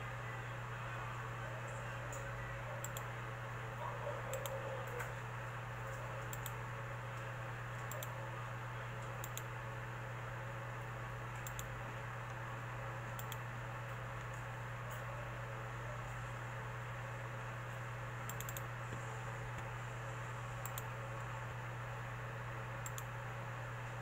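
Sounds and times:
steady low hum: 0:00.0 - 0:24.0
computer mouse clicking: 0:02.1 - 0:03.1, 0:04.3 - 0:05.1, 0:05.9 - 0:06.6, 0:07.8 - 0:08.2, 0:09.0 - 0:09.5, 0:11.3 - 0:11.7, 0:13.2 - 0:13.4, 0:18.3 - 0:18.7, 0:20.6 - 0:20.9, 0:22.8 - 0:23.1.

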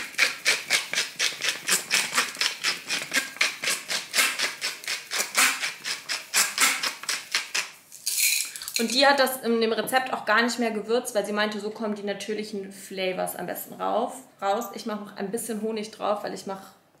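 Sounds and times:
salt shaker rattling: 0:00.0 - 0:09.0.

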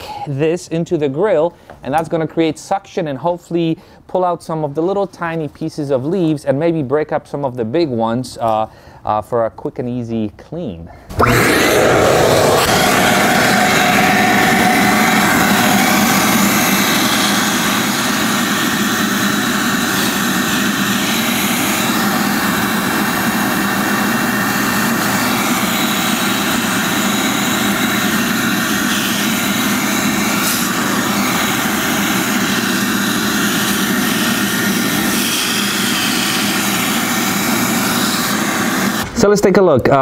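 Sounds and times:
vacuum cleaner running: 0:11.1 - 0:39.2.

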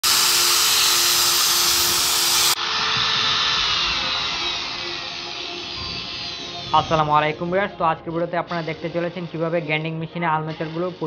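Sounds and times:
angle grinder motor running: 0:00.0 - 0:07.2.

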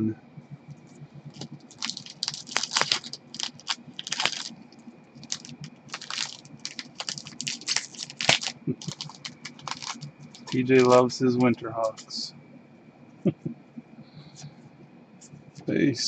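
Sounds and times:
cards rustling: 0:01.3 - 0:04.5, 0:05.2 - 0:12.3
card pack wrappers crinkling: 0:01.3 - 0:12.3.

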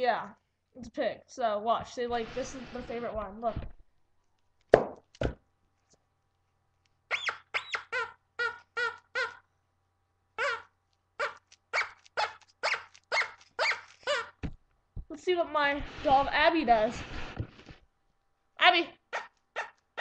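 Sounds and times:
squeaky dog toy squeaks: 0:07.1 - 0:09.5, 0:10.4 - 0:14.4, 0:19.0 - 0:20.0.

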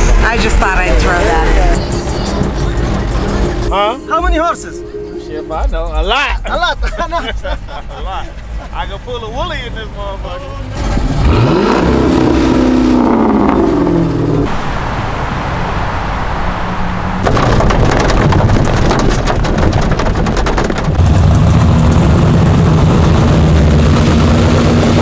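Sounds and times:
car engine revving: 0:00.0 - 0:05.1, 0:05.7 - 0:25.0
car engine rumbling past: 0:07.2 - 0:19.5
heavy rain on car roof: 0:17.2 - 0:22.1.

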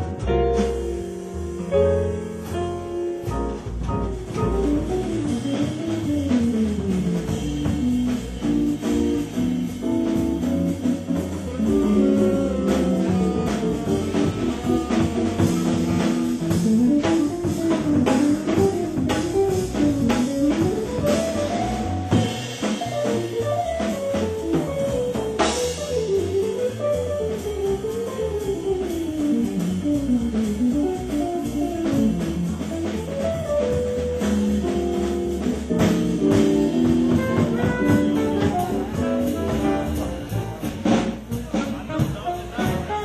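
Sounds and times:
drum kit: 0:00.0 - 0:43.0
upright bass: 0:00.0 - 0:43.0
guitar melody: 0:07.9 - 0:26.8.

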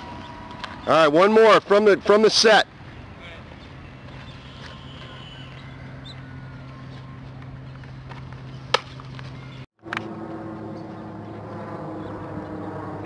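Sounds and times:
low hum: 0:05.6 - 0:13.0.

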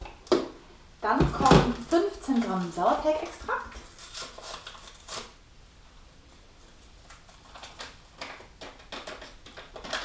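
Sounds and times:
packaging rustles and taps: 0:07.0 - 0:10.0.

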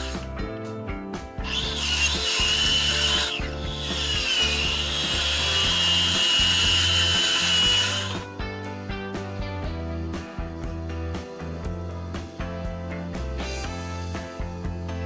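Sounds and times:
circular saw cutting board: 0:01.4 - 0:08.3.

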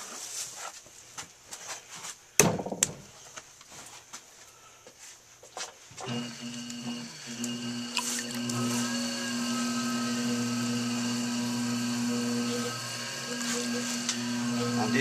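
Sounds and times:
potter's wheel motor humming: 0:06.0 - 0:15.0.

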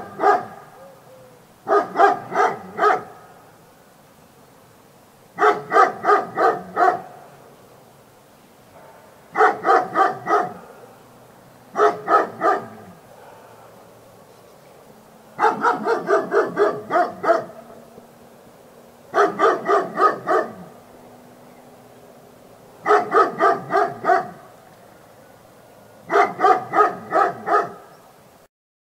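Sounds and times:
dog barking: 0:00.0 - 0:00.8, 0:01.6 - 0:03.3, 0:05.4 - 0:07.2, 0:08.8 - 0:11.0, 0:11.7 - 0:13.8, 0:15.4 - 0:17.6, 0:19.1 - 0:20.7, 0:22.8 - 0:24.4, 0:26.1 - 0:27.9.

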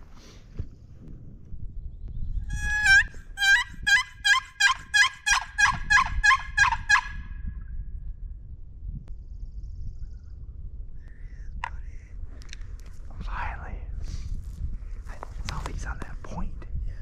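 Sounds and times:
turkey call yelps: 0:02.5 - 0:07.3.

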